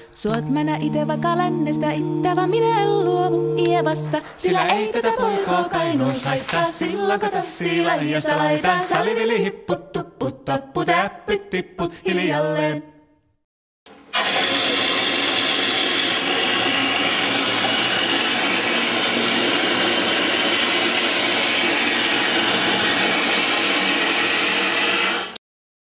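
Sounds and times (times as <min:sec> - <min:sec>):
toilet flushing: 0:13.9 - 0:25.4.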